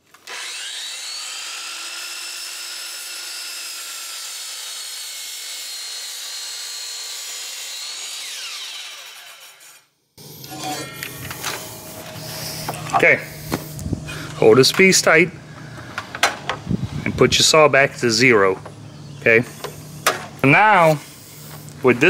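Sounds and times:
miter saw cutting wood: 0:00.0 - 0:14.5, 0:19.2 - 0:22.0.

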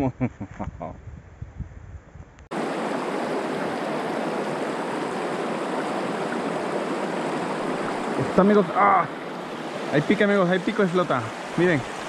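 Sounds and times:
river water rushing over rocks: 0:02.5 - 0:12.0.

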